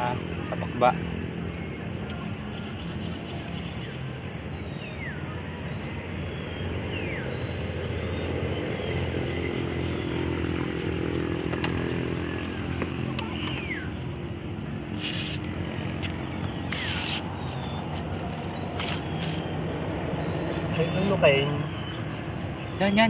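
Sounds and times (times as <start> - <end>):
motor engine droning: 0.0 - 23.0.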